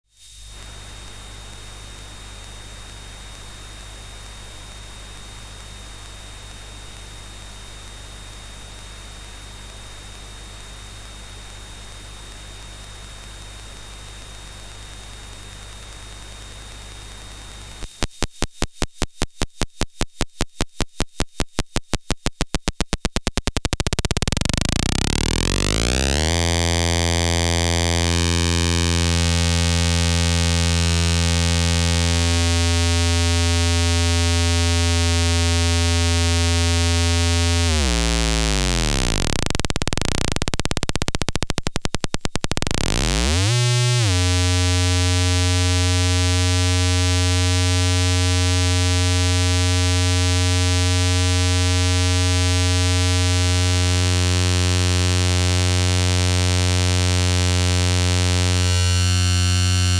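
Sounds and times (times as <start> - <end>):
steady hiss: 0.1 - 1.2
mains hum: 0.1 - 59.9
synthesizer clicks quickening into buzz: 16.7 - 59.9
buzzy low synthesizer tone: 23.6 - 41.6, 42.4 - 59.9.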